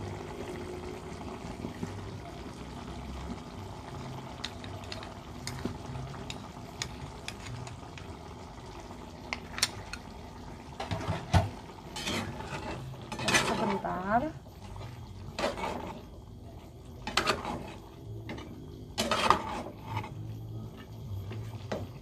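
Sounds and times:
stew bubbling in a pan: 0:00.0 - 0:22.0
spatula scraping a pan: 0:11.0 - 0:13.9, 0:15.3 - 0:16.1, 0:17.0 - 0:21.8.

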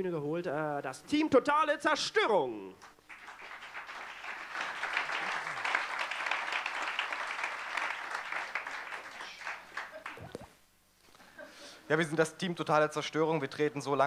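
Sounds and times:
audience applause: 0:03.1 - 0:10.4.

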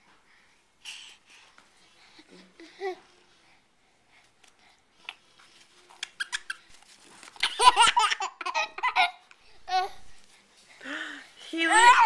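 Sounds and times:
baby laughing: 0:06.0 - 0:06.7, 0:07.4 - 0:09.9.

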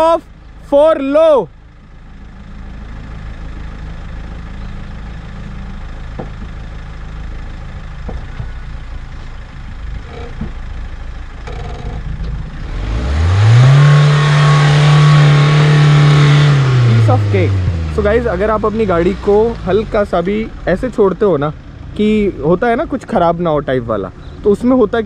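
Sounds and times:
engine running and revving: 0:11.4 - 0:25.0.

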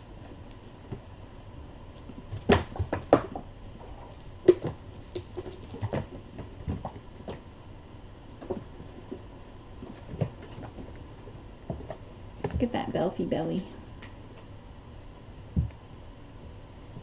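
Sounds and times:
kittens knocking and rustling: 0:02.0 - 0:07.5, 0:08.4 - 0:12.7.

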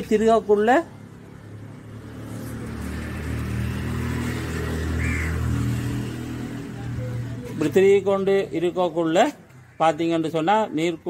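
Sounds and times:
vehicle engine humming: 0:00.0 - 0:09.8.

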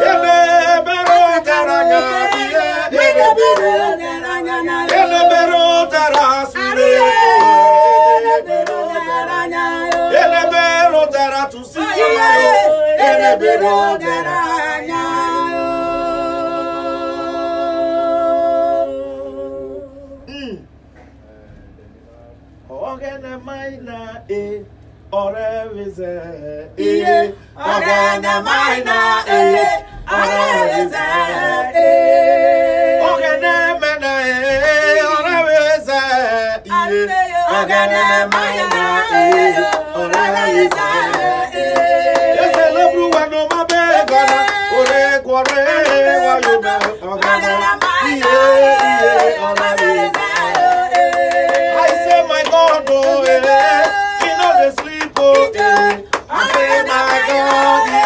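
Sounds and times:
men and women singing gospel: 0:00.0 - 0:20.6, 0:22.7 - 0:58.0
hand claps: 0:01.0 - 0:01.3, 0:06.1 - 0:06.4, 0:38.3 - 0:58.0.

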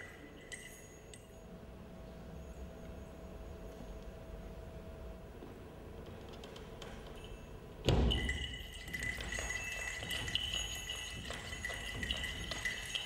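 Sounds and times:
high ringing tone: 0:00.0 - 0:04.0, 0:07.2 - 0:13.0
light jingling: 0:07.2 - 0:13.0.

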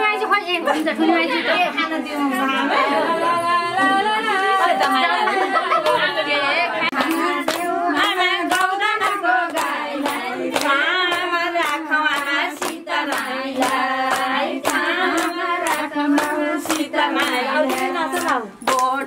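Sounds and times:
voices singing together: 0:01.3 - 0:19.0
rhythmic hand clapping: 0:04.3 - 0:06.2, 0:06.8 - 0:19.0.

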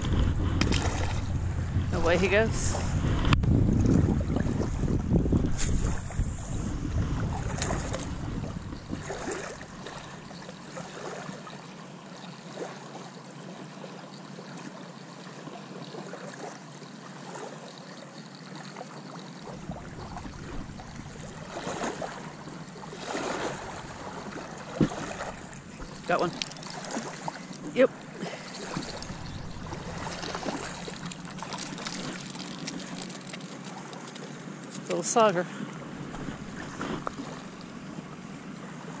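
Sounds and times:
wind on microphone: 0:00.0 - 0:10.3, 0:19.5 - 0:26.6, 0:28.5 - 0:33.0, 0:36.0 - 0:38.1
river water lapping: 0:00.0 - 0:39.0
fishing reel clicks and rustles: 0:25.7 - 0:27.7, 0:28.4 - 0:35.0.

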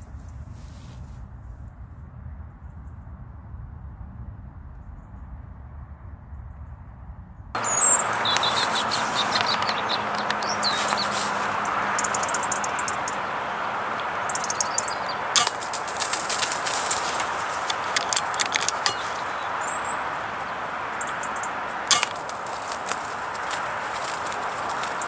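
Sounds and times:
low rumble: 0:00.0 - 0:08.0
faint crackles: 0:07.6 - 0:25.0
small birds chirping: 0:07.6 - 0:25.0
steady outdoor hiss: 0:07.6 - 0:25.0.

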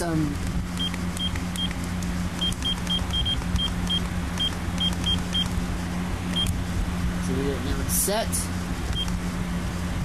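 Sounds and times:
steady low hum: 0:00.0 - 0:10.0
short high beeps: 0:02.4 - 0:05.5.

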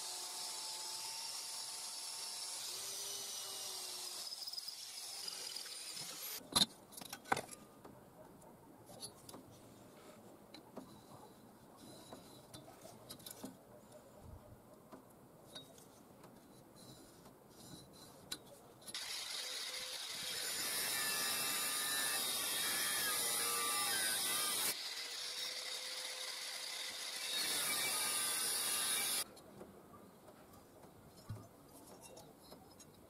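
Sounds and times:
cut-off disc grinding steel: 0:18.9 - 0:29.3.

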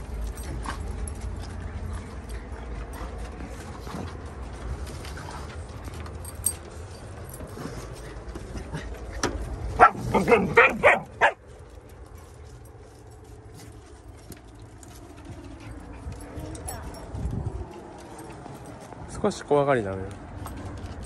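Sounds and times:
dog barking: 0:09.8 - 0:11.4.

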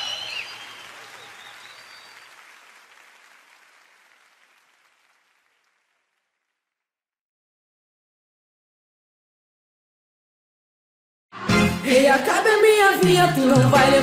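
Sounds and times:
crowd applauding and cheering: 0:00.0 - 0:06.7.

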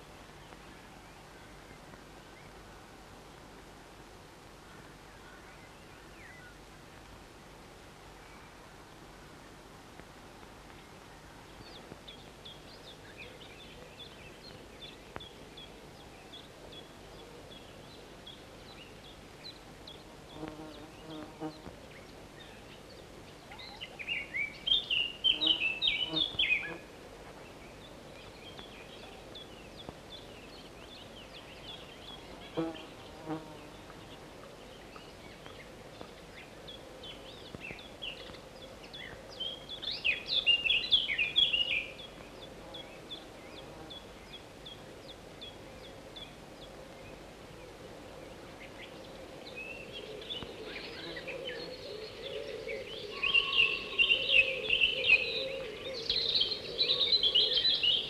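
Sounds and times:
chickadees calling: 0:50.1 - 0:58.0.

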